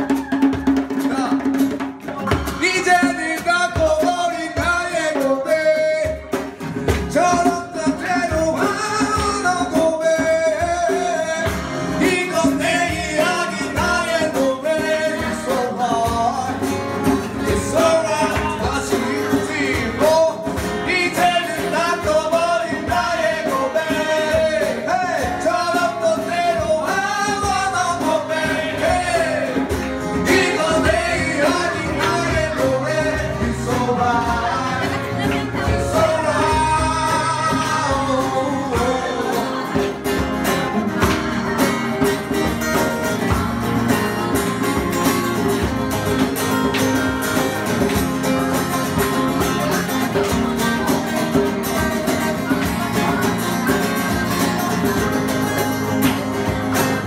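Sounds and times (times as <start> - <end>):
man singing into a microphone: 0.8 - 41.0
keyboard accompaniment: 1.9 - 57.0.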